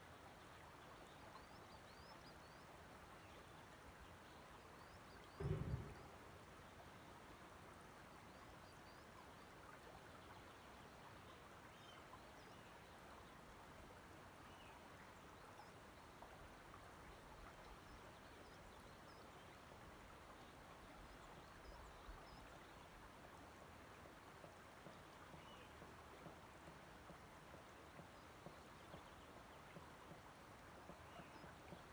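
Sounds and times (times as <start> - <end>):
soft water ticks: 0.0 - 31.9
distant bird chirps: 5.2 - 6.4.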